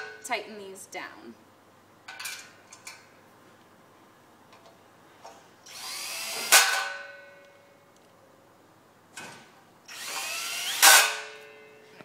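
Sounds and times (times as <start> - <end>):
cordless drill motor whirring: 5.7 - 6.6, 9.9 - 11.1.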